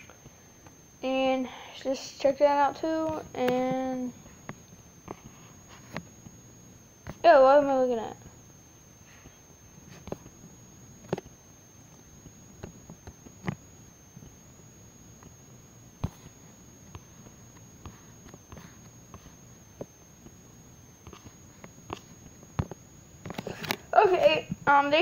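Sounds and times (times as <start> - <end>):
faint hum: 0.0 - 25.0.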